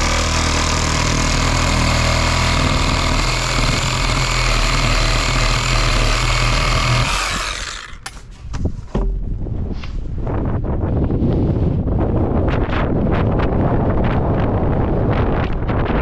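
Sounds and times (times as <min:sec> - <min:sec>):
reciprocating saw cutting pipe: 0:00.0 - 0:08.2
wind buffeting microphone: 0:00.0 - 0:16.0
knocks: 0:07.9 - 0:09.5.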